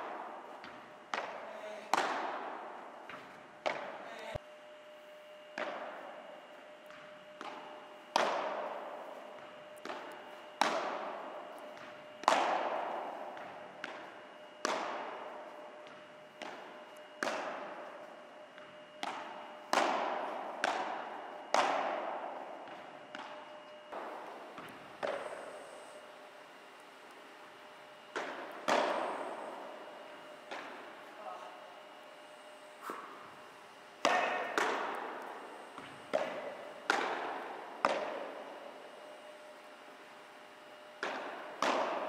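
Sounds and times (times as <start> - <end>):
padel ball hit by rackets: 6.9 - 17.7, 28.1 - 29.3, 35.8 - 38.4.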